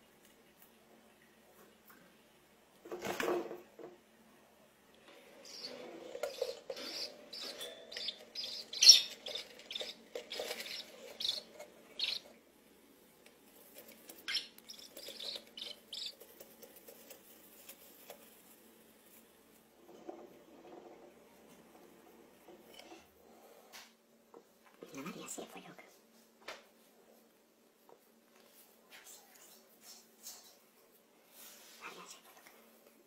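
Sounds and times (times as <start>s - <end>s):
budgerigars chirping: 5.5s - 12.3s, 14.3s - 16.2s.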